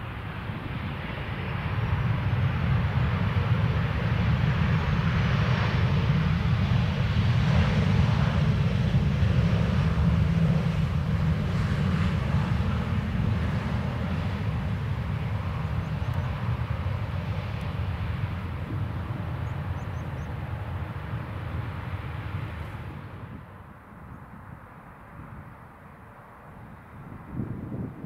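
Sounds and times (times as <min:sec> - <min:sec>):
jet airliner rumble: 0:00.0 - 0:28.0.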